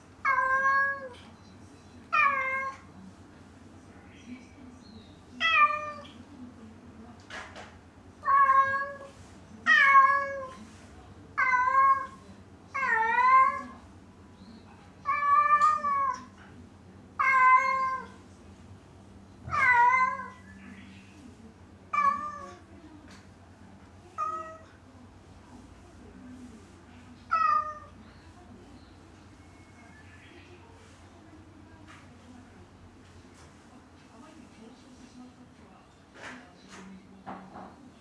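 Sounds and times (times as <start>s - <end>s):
cat meowing: 8.2s - 9.1s, 17.2s - 18.2s, 19.5s - 20.4s, 21.9s - 22.6s, 24.2s - 24.7s, 27.3s - 27.9s.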